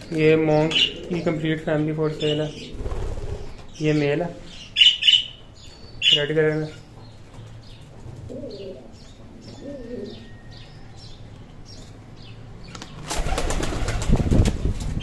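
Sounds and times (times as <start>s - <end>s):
pigeons cooing softly: 0.0s - 5.2s, 6.0s - 11.1s.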